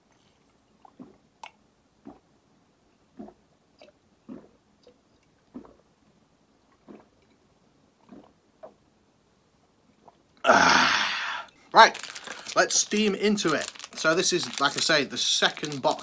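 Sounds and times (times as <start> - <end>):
man gulping a drink: 0.1 - 2.4, 3.1 - 5.9, 6.6 - 8.8, 10.0 - 11.6.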